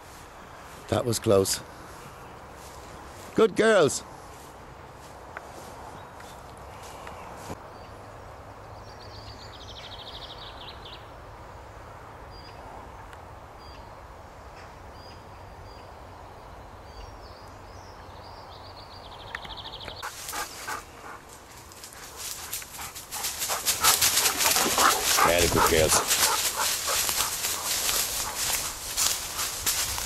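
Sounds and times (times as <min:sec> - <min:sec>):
songbirds chirping: 0:00.0 - 0:30.0
footsteps crunching dry leaves: 0:20.0 - 0:30.0.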